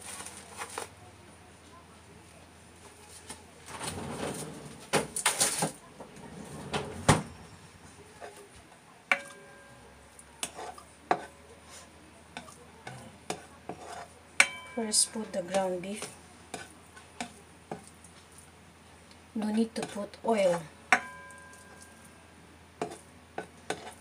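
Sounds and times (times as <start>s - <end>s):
spoon and tray knocking on frying pan: 9.1s - 9.7s, 13.3s - 15.7s, 20.9s - 21.9s
frying pan ringing: 9.1s - 10.2s, 14.4s - 15.9s, 20.9s - 22.4s.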